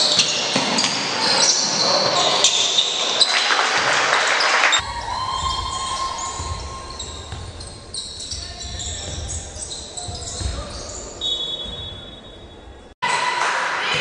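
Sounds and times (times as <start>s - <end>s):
sneakers squeaking on hardwood: 0.0s - 3.9s, 4.7s - 12.9s
players calling out: 0.0s - 12.2s
basketball dribbling: 5.0s - 11.9s.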